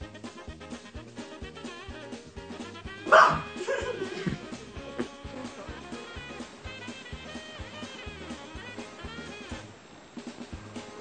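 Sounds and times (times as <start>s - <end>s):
background music: 0.0s - 11.0s
loud bark-like cry: 3.0s - 3.7s.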